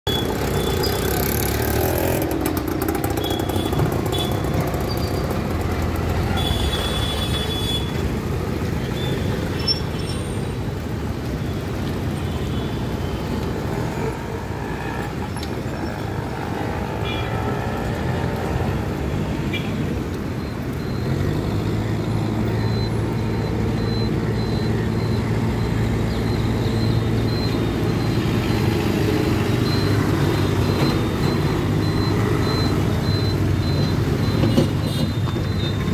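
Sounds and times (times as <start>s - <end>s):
steady traffic rumble: 0.0s - 35.9s
motorcycle engines passing: 0.1s - 12.2s, 12.9s - 35.9s
auto-rickshaw engines passing: 0.1s - 35.9s.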